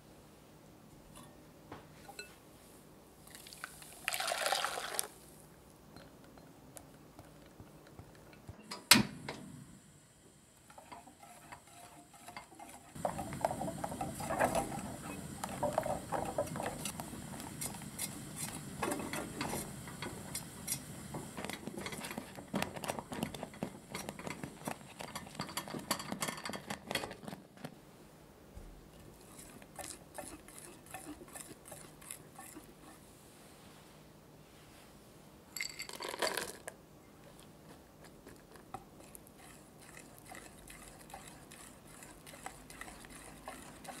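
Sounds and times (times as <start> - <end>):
whisk scraping a saucepan: 10.7 - 20.8, 29.2 - 33.1, 38.7 - 44.0.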